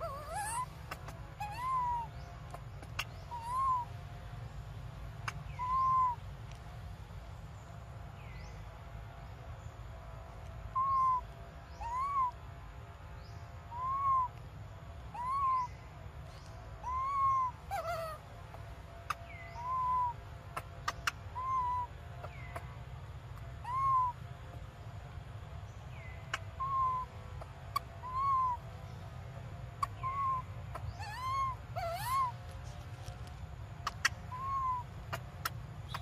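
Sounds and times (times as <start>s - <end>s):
baby monkey whimpering coos: 0.0s - 2.1s, 2.8s - 3.9s, 5.4s - 6.2s, 10.8s - 11.2s, 11.8s - 12.4s, 13.7s - 14.3s, 15.2s - 15.7s, 16.8s - 18.2s, 19.1s - 20.2s, 21.0s - 21.9s, 23.6s - 24.2s, 26.3s - 27.1s, 27.7s - 28.6s, 29.8s - 32.5s, 33.8s - 35.2s.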